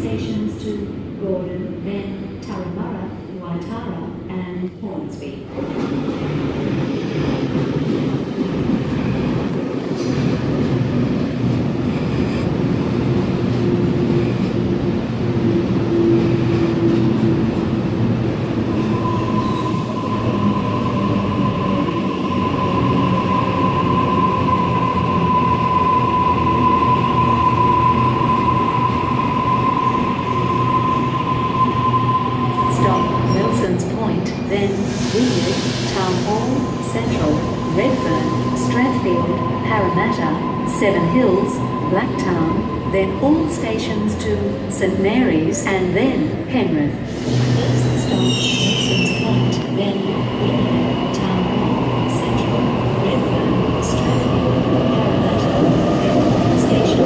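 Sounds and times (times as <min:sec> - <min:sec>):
high-pitched squeal from train: 0:18.8 - 0:33.6, 0:47.1 - 0:49.6.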